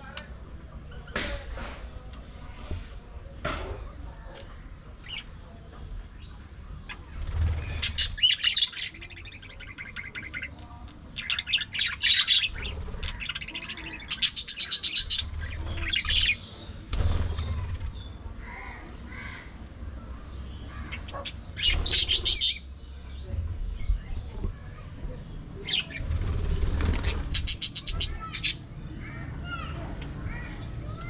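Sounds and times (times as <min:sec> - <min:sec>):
budgerigars chirping: 0:06.8 - 0:18.0, 0:20.2 - 0:22.7, 0:26.7 - 0:28.6.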